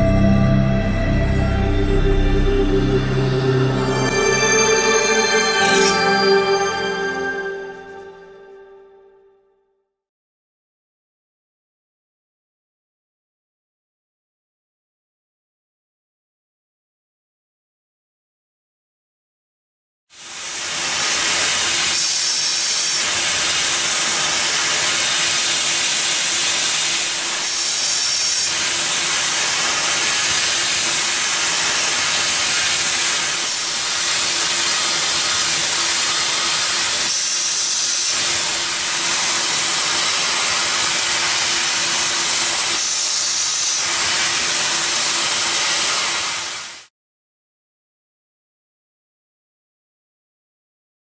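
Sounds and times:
shrill cutting whines: 0:00.0 - 0:09.2
milling spindle cutting copper: 0:22.2 - 0:46.4.

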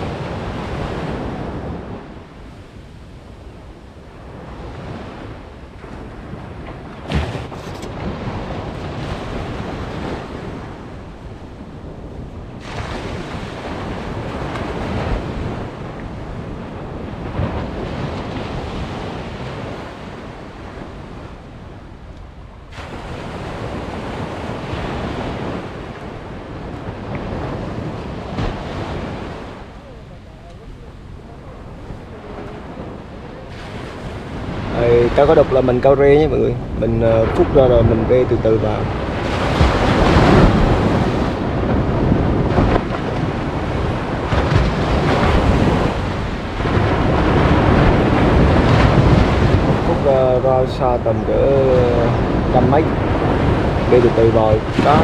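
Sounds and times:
surf washing onto beach: 0:00.0 - 0:55.0
wind buffeting microphone: 0:00.0 - 0:55.0
sharp click: 0:07.5 - 0:08.0.

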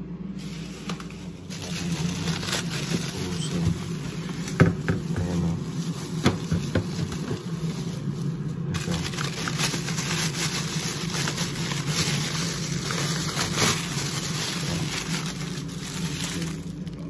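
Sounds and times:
steady low hum: 0:00.0 - 0:17.0
plastic crinkling: 0:00.4 - 0:17.0
frozen items knocking: 0:00.9 - 0:17.0.

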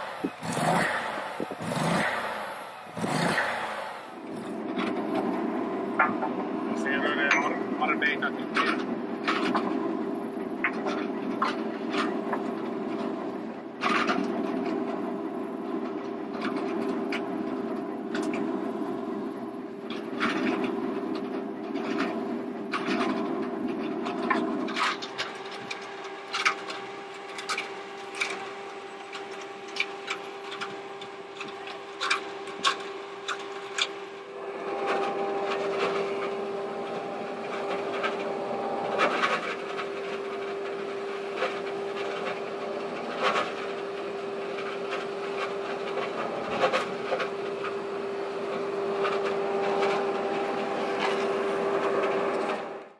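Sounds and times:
electric motor hum: 0:25.1 - 0:52.9.

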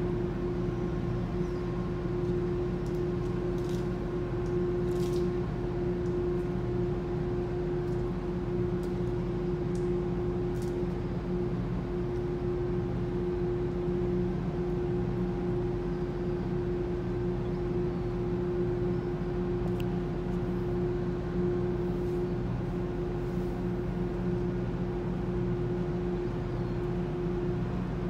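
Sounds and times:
ship machinery drone: 0:00.0 - 0:28.0.

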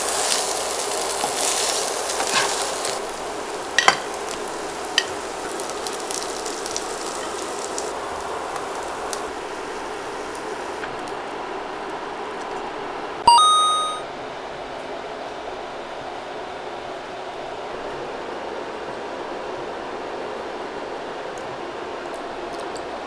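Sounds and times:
tofu sizzling in a wok: 0:00.0 - 0:11.2
metal tongs clicking on pan: 0:03.8 - 0:04.1, 0:05.0 - 0:05.2.

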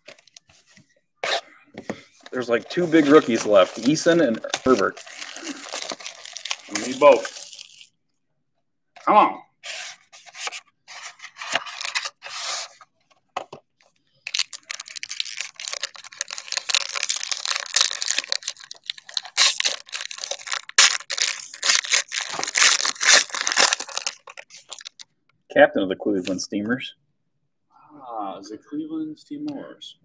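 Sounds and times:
plastic wrapper ripping: 0:02.3 - 0:07.9, 0:14.2 - 0:25.1
wrapper crackling and rustling: 0:02.3 - 0:07.9, 0:14.2 - 0:25.1.

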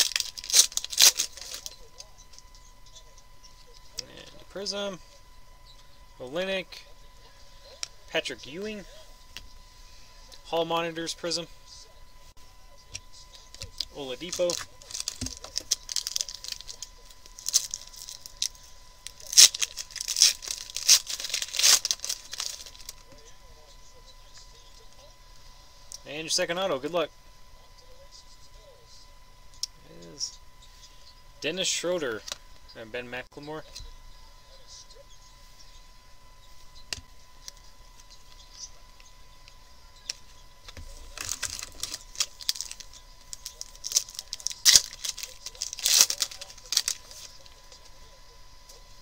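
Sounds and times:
foil wrapper tearing and crinkling: 0:00.0 - 0:01.8, 0:13.7 - 0:23.0, 0:41.0 - 0:47.6
crackling rips and rustles: 0:00.0 - 0:02.5, 0:13.3 - 0:23.2, 0:40.0 - 0:47.9.

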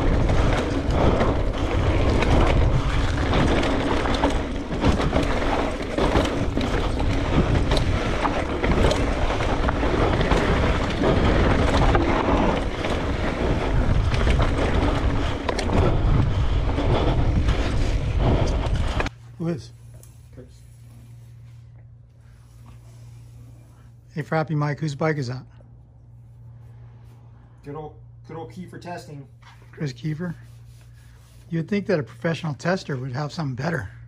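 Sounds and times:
bike rattling over bumps: 0:00.0 - 0:19.1
tyres rushing on dirt: 0:00.0 - 0:19.1
wind buffeting microphone: 0:00.0 - 0:19.1.

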